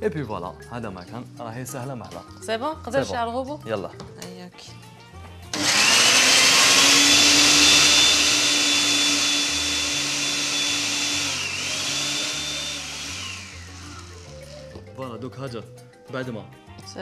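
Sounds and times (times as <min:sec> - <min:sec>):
blender motor whining: 0:05.5 - 0:14.7.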